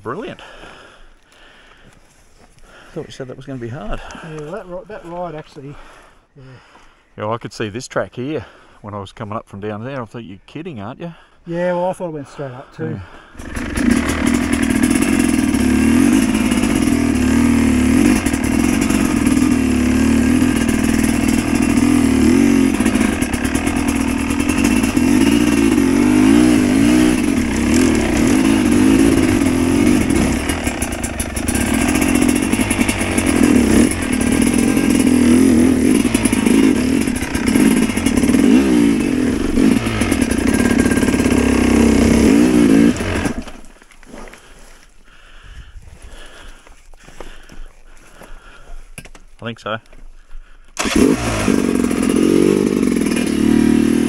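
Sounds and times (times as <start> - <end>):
dirt bike engine revving: 13.4 - 43.7, 50.8 - 54.0.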